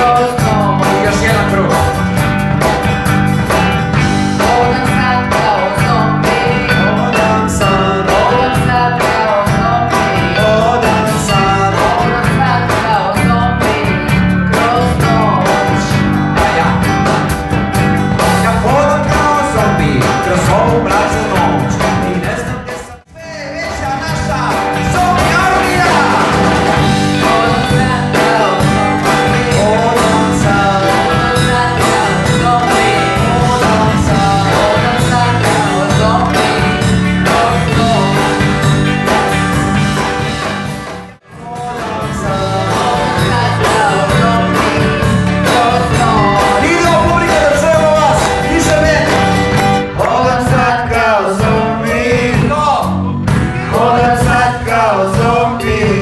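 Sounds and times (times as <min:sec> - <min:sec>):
people singing into microphones: 0:00.0 - 0:01.9, 0:03.7 - 0:17.4, 0:23.6 - 0:39.6, 0:41.3 - 0:56.0
acoustic guitar: 0:00.0 - 0:56.0.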